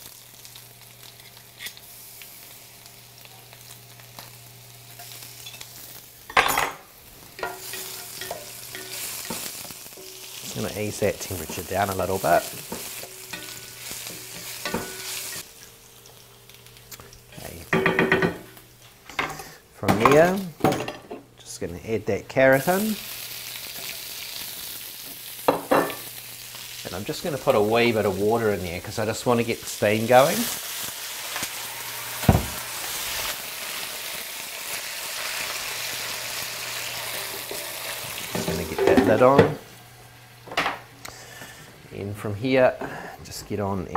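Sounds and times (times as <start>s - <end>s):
garlic sizzling in oil: 0.0s - 19.6s, 22.3s - 41.9s
thud: 32.2s - 32.6s.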